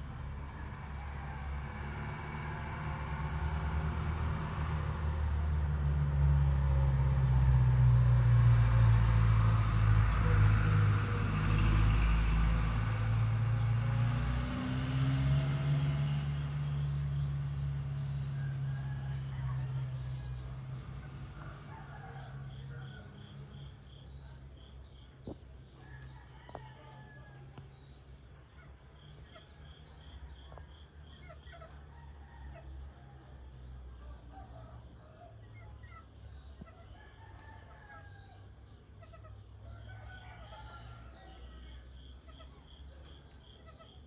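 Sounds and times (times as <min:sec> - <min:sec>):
roosters crowing and clucking: 0:18.3 - 0:23.6, 0:25.6 - 0:27.8, 0:30.2 - 0:33.4, 0:34.2 - 0:42.6.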